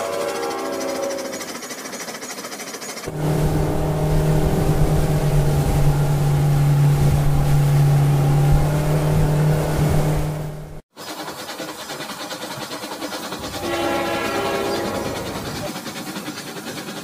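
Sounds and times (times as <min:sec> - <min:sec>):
toy boat motor buzzing: 0:00.0 - 0:07.0, 0:11.0 - 0:16.4
water churning: 0:00.1 - 0:17.0.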